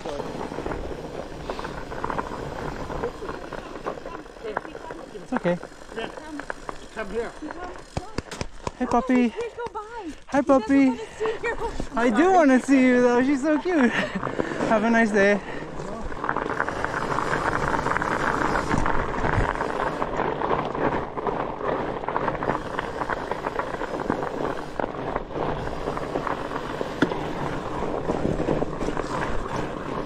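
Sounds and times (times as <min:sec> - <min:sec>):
bike tyres crunching on ice: 0:00.0 - 0:30.0
wind on microphone: 0:16.1 - 0:30.0.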